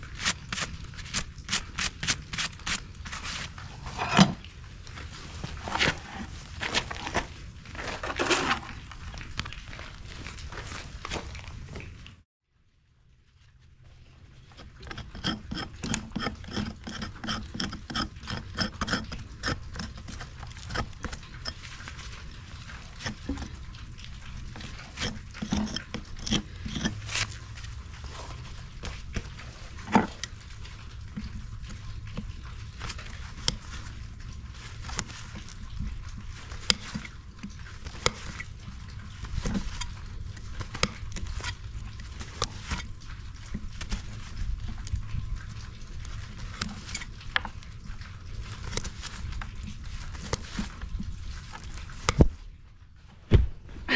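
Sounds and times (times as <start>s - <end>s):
hand tool scraping hoof: 0.0s - 4.4s, 5.4s - 8.8s, 14.5s - 21.7s, 24.6s - 27.4s.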